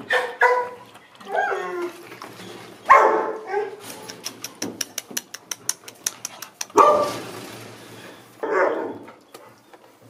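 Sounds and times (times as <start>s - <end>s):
dog barking: 0.0s - 0.8s, 2.9s - 3.8s, 6.8s - 7.2s, 8.4s - 9.0s.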